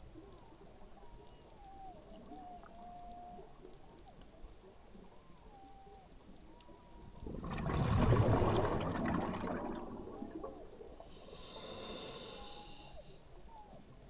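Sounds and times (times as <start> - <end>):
bubbles gurgling: 7.0 - 11.2
soft hiss: 8.5 - 14.0.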